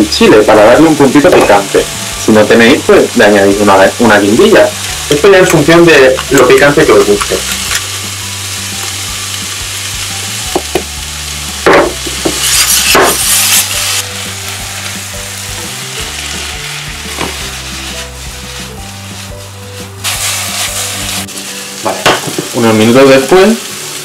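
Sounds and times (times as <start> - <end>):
vegetables sizzling in hot oil: 0.0 - 24.0
spatula knocking and scraping pan: 17.1 - 18.8.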